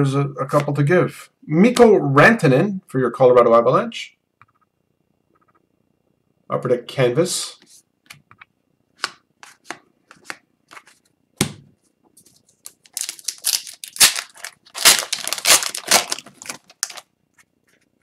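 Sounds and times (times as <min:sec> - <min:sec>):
foil wrapper crinkling and tearing: 0:12.6 - 0:17.1.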